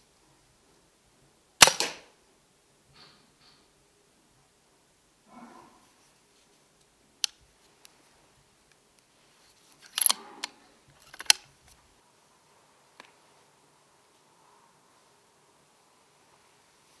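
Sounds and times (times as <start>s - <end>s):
air rifle clicks: 1.6s - 2.1s, 9.8s - 10.2s, 11.0s - 11.5s.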